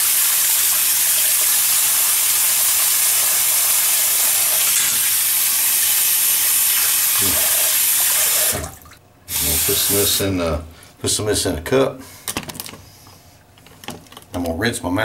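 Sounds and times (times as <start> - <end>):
faucet running: 0.0 - 10.2.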